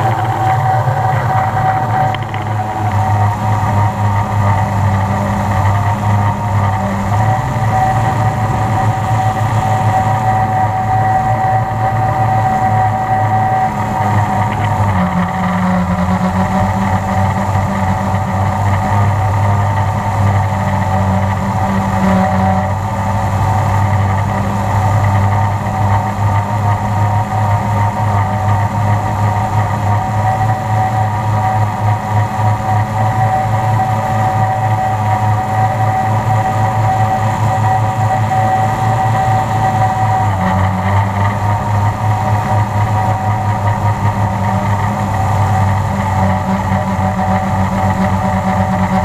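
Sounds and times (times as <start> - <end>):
drone motors humming with whine: 0.0 - 49.0.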